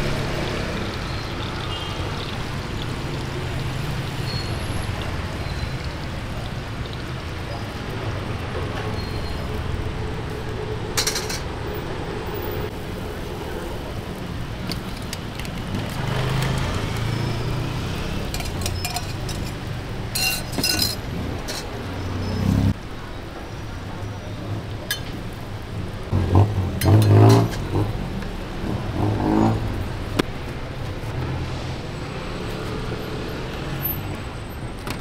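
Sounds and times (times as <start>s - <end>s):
street traffic rumble: 0.0s - 35.0s
metal utensils clinking on griddle: 11.0s - 11.5s, 18.3s - 21.8s.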